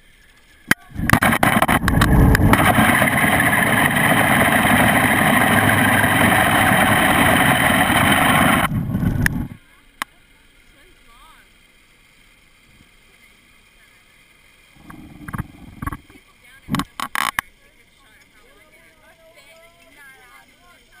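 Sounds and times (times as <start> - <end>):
zipline pulleys whirring on cable: 0.0 - 9.7
gear clicks on cable: 14.8 - 17.5.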